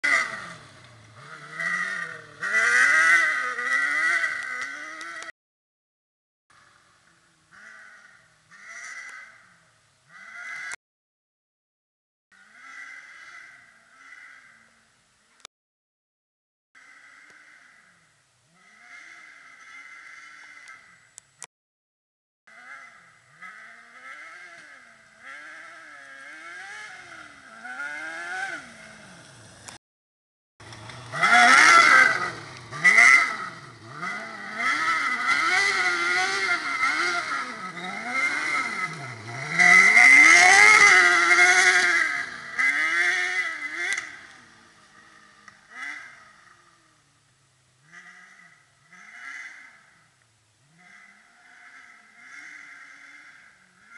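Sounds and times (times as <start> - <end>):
kart engine revving: 0.0 - 5.3, 22.5 - 29.8, 30.6 - 53.9.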